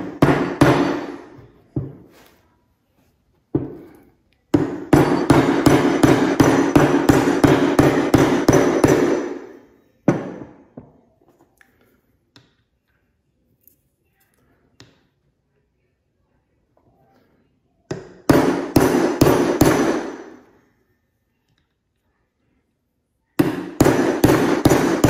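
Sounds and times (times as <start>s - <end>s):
hammer tapping metal: 3.6s - 10.6s.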